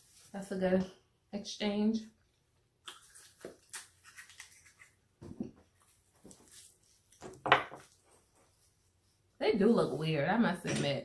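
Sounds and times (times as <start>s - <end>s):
soft chewing: 2.3s - 5.0s.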